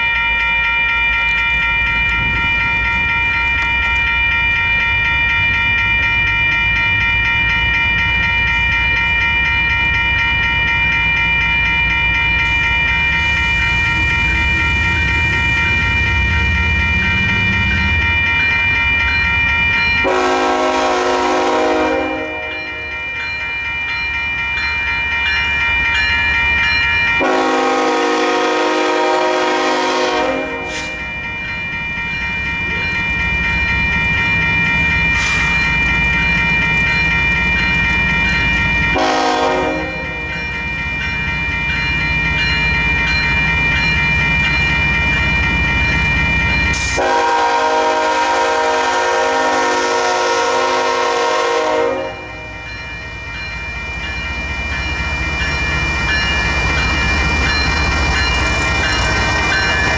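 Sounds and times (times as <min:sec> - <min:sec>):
crossing warning bell ringing: 0:00.0 - 0:59.9
train air horn blasts: 0:20.0 - 0:22.5, 0:27.2 - 0:30.9, 0:38.9 - 0:40.0, 0:47.0 - 0:52.3.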